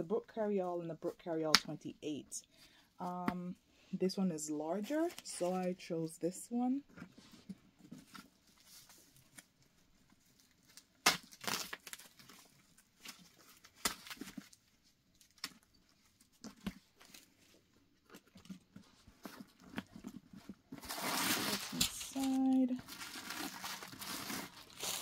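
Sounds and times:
tissue paper crinkling: 20.4 - 25.0.

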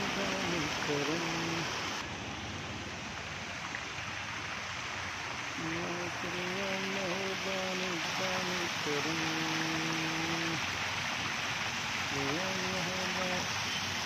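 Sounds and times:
fountain water splashing: 0.0 - 14.0.

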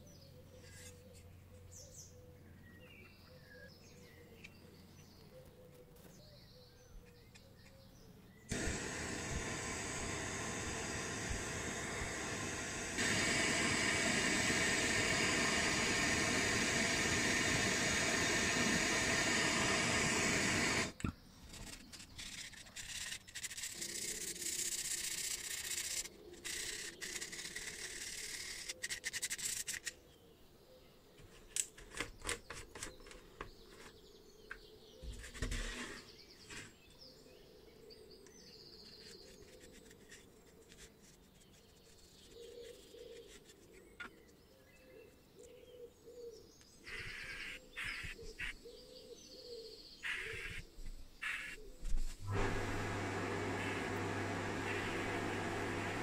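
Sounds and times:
gas torch flame hissing: 8.5 - 21.1, 51.2 - 56.0
metal part rubbing and scraping: 21.5 - 29.9.

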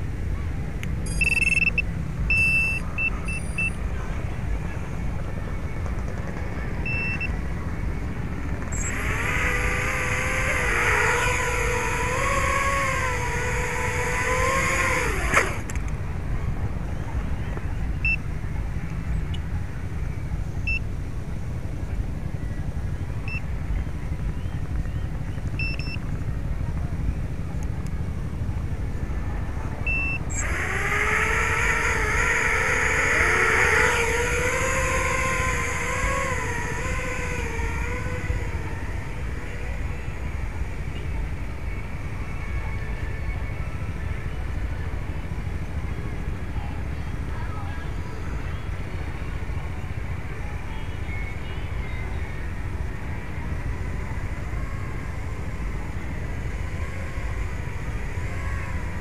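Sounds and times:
quadcopter motors whining: 0.0 - 59.0
wind rumble on microphone: 0.0 - 59.0
faint short beeps: 1.0 - 3.8, 6.8 - 7.4, 20.6 - 20.8, 25.6 - 26.0, 29.8 - 30.2.

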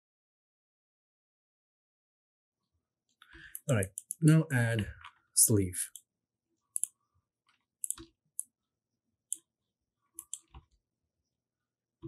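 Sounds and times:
computer mouse clicks: 3.2 - 4.3, 6.8 - 7.0, 7.8 - 8.5, 10.2 - 10.8.

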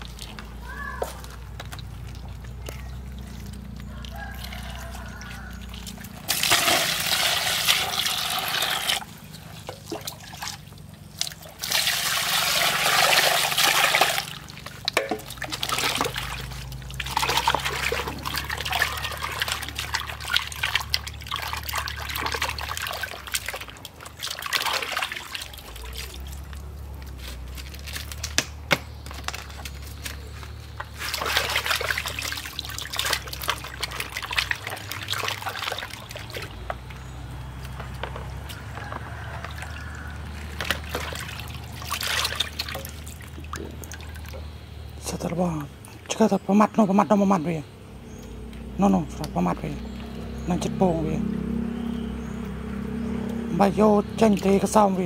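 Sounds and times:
hands scrubbing meat: 0.0 - 28.4, 29.3 - 44.4
water splashing in plastic basin: 0.0 - 46.2, 48.5 - 55.0
rushing water: 0.0 - 55.0.

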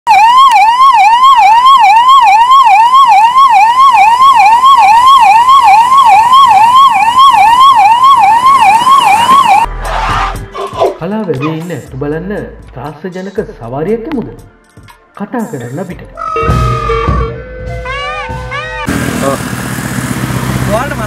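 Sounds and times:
electronic siren yelping: 0.1 - 10.3, 16.2 - 18.9.

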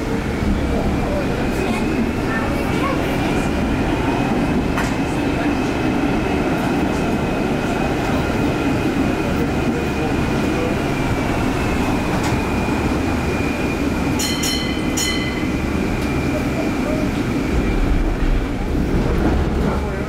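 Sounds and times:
tram rumbling on rails: 0.0 - 20.0.

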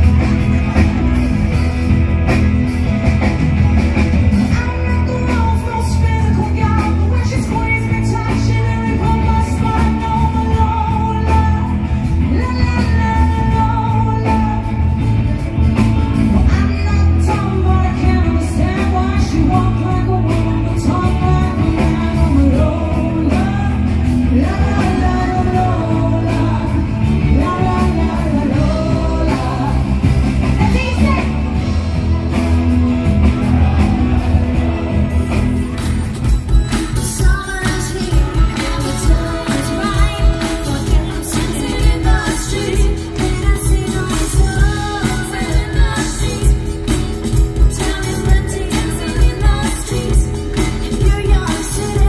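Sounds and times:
band with drums bass and keyboards: 0.0 - 52.0
woman singing into a microphone: 4.4 - 15.2, 16.3 - 31.3, 37.0 - 52.0.

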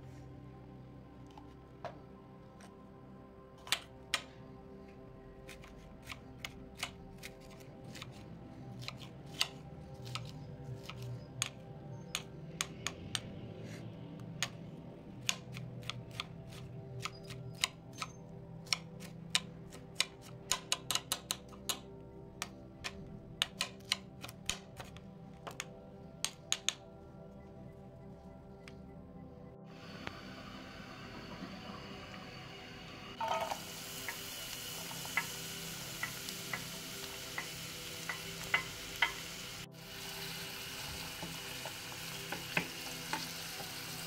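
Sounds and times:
soft background music: 0.0 - 44.0.

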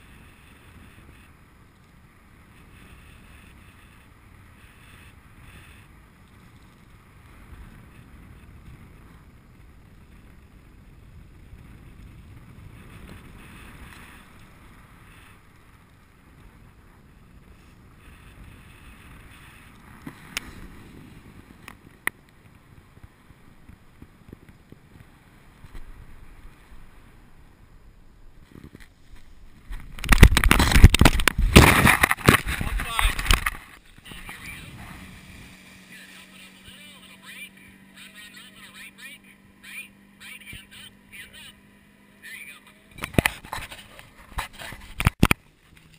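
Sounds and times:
wind rushing over microphone: 0.0 - 37.9
rough impact noise on landing: 29.7 - 33.7.

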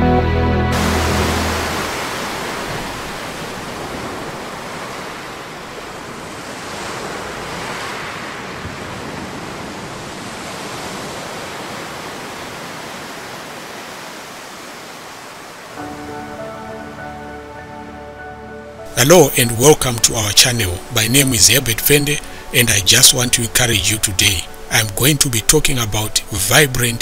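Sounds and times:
soft music with held notes: 0.0 - 1.9, 15.8 - 27.0
sea surf: 0.7 - 27.0
wind: 0.8 - 27.0.

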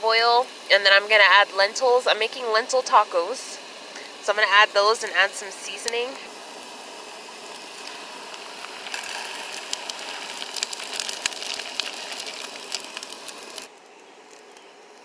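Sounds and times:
onions sizzling in oil: 0.4 - 0.7, 1.6 - 13.7
lentils rattling into pan: 7.6 - 13.7.

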